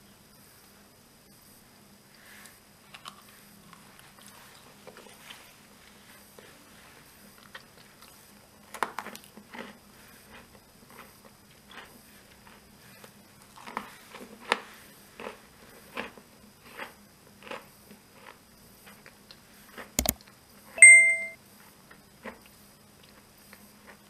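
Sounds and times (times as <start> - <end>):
button click and bell ding: 20.8 - 21.4.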